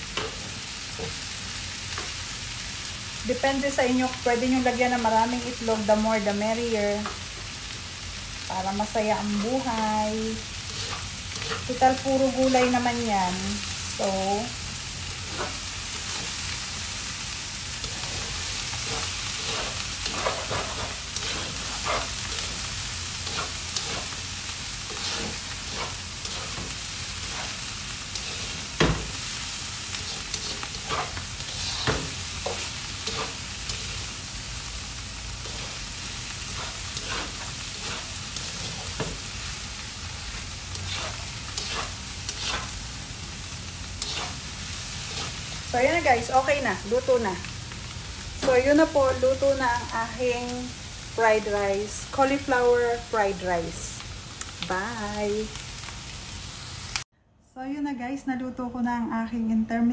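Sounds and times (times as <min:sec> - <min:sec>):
rice sizzling in a wok: 0:00.0 - 0:57.1
spatula scraping and tapping pan: 0:10.7 - 0:11.8, 0:17.9 - 0:22.6, 0:23.2 - 0:24.2, 0:24.9 - 0:29.2, 0:29.9 - 0:34.0, 0:36.5 - 0:39.2, 0:40.8 - 0:42.8, 0:44.0 - 0:44.4.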